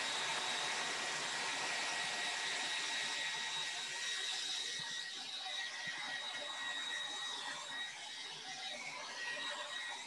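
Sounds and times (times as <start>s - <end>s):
hair dryer running: 0.0s - 4.9s.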